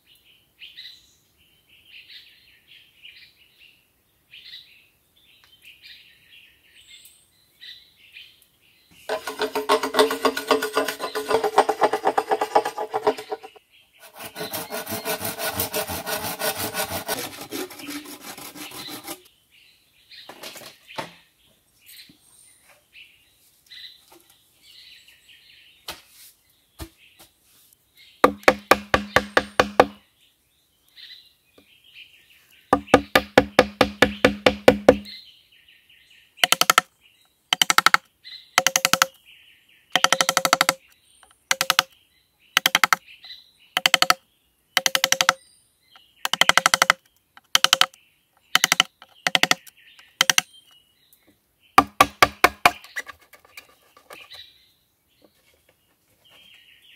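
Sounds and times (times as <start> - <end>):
birds chirping: 6.5 - 25.9, 28.0 - 56.9
knife chopping hollow bamboo: 9.1 - 19.2, 28.2 - 30.0, 32.8 - 35.1, 36.4 - 36.9, 37.6 - 38.0, 38.6 - 39.1, 40.0 - 41.9, 42.6 - 43.0, 43.8 - 44.2, 44.8 - 45.4, 46.3 - 48.0, 48.6 - 50.4, 51.8 - 53.7.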